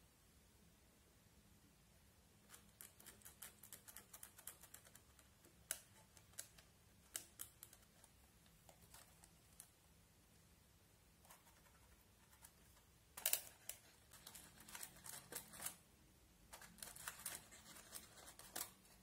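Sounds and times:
plastic scoop scraping eyeshadow: 11.3 - 15.8.

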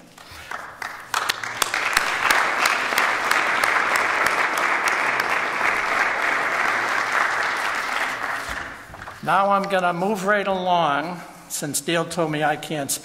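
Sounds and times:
audience applauding: 0.2 - 9.2.

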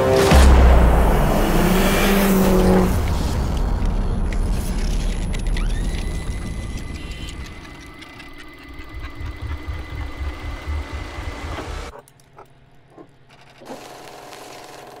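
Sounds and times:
rapid mechanical clatter: 3.6 - 12.0.

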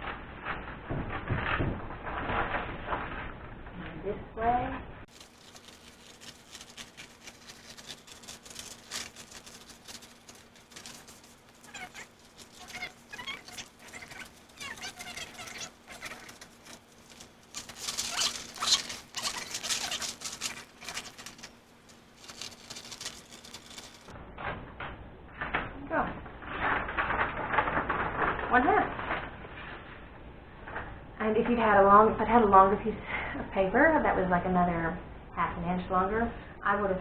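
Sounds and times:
paper rustling and crackling: 0.0 - 24.1, 26.3 - 29.9
faint steady hum: 0.0 - 37.0
scissors snipping paper: 5.1 - 21.6, 22.2 - 24.1.

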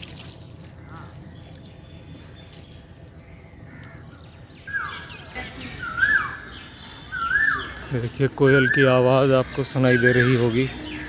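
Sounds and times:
small birds: 0.0 - 11.0
bird whistled call: 7.1 - 7.8.

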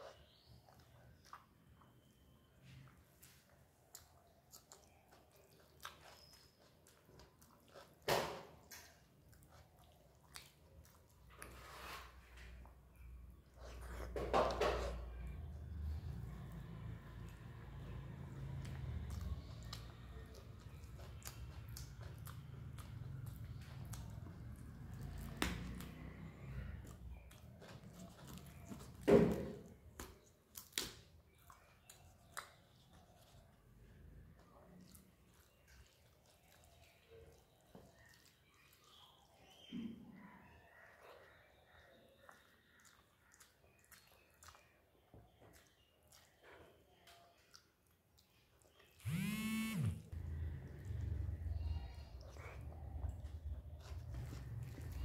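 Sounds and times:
close-up chewing: 0.0 - 55.0
fingers mixing food wet squelches: 0.0 - 55.0.

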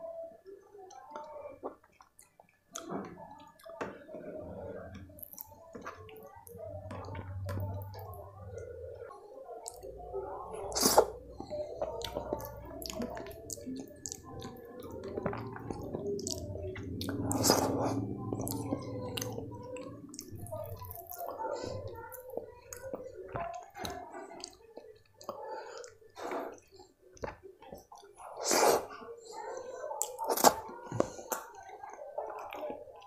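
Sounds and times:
wet chewing and mouth smacking: 10.6 - 33.0.

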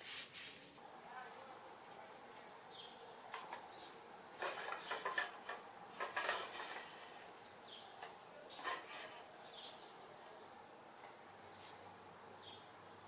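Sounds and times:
wood rubbing and clicking: 3.3 - 9.9
wooden sword sliding in scabbard: 8.5 - 9.8.

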